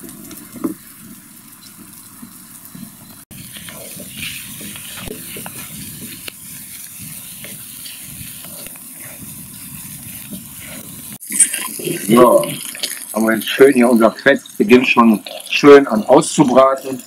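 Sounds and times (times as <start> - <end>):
fat sizzling in a pan: 0.0 - 17.0
wooden spatula scraping pan: 3.4 - 11.6.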